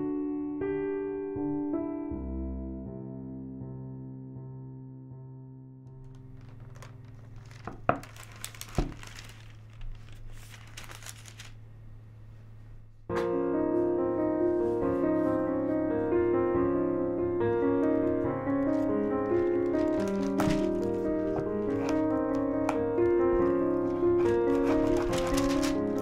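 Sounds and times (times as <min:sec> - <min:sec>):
piano music: 0:00.0 - 0:11.6, 0:13.1 - 0:26.0
crinkling handling noise: 0:06.0 - 0:11.6, 0:17.6 - 0:26.0
low steady hum: 0:06.1 - 0:13.1.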